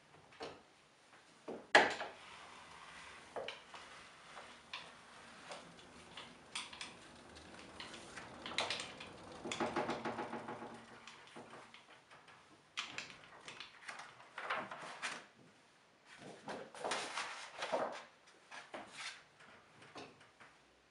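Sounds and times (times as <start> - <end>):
rattling ticks: 3.3 - 12.4
printing press clanks and knocks: 4.4 - 11.8.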